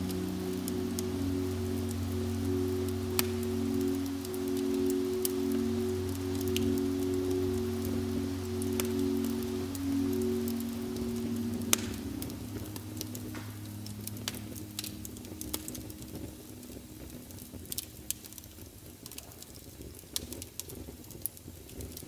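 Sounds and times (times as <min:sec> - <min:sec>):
log fire crackling and popping: 0:00.0 - 0:22.0
low sustained music tones: 0:00.0 - 0:22.0.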